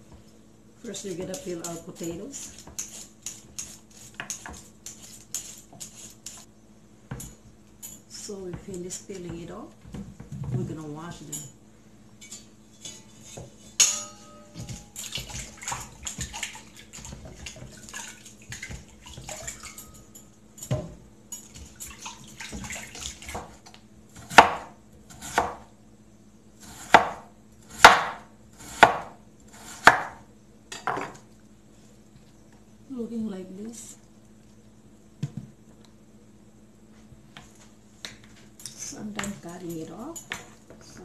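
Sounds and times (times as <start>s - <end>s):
clink against metal bowl: 12.2s - 15.1s, 19.4s - 21.5s.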